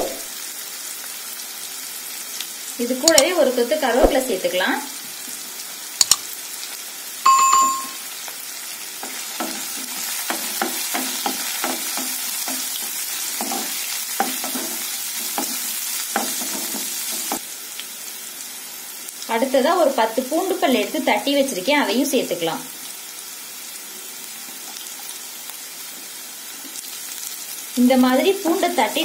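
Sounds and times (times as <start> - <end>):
onions sizzling in hot oil: 0.0 - 7.2, 8.0 - 29.0
sharp clicks: 3.1 - 3.3, 6.0 - 6.2
bell-like ding: 7.3 - 8.1.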